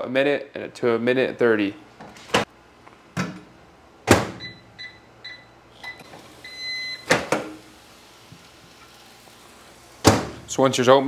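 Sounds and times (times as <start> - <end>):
long microwave beep: 4.4 - 7.2
microwave door shutting: 7.0 - 7.6.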